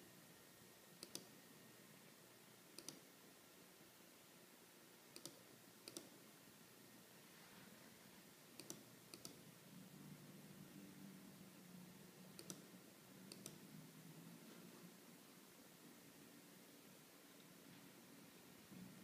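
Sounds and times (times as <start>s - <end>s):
faint low hum: 0.0s - 19.0s
faint sharp clicks: 2.8s - 3.0s, 8.6s - 9.4s, 12.4s - 12.7s, 13.3s - 13.6s.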